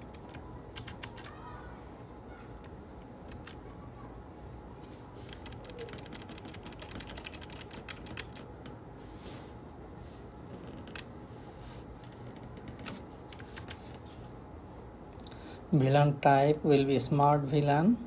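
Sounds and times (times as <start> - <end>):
computer keyboard keys clicking: 0.0 - 1.4, 2.6 - 3.6, 5.3 - 8.5, 12.7 - 14.0.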